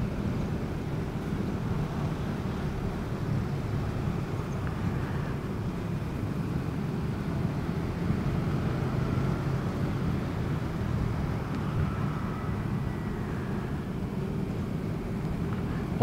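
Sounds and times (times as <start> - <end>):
vehicle engine and road noise: 0.0 - 16.0.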